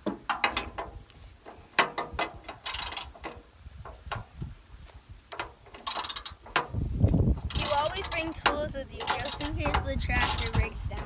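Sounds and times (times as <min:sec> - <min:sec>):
metal clicks: 0:05.3 - 0:06.7.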